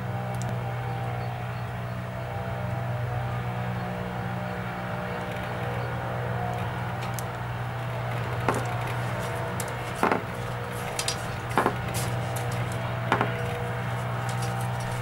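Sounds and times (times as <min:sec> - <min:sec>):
engine droning: 0:00.0 - 0:15.0
sharp knocks: 0:08.4 - 0:15.0.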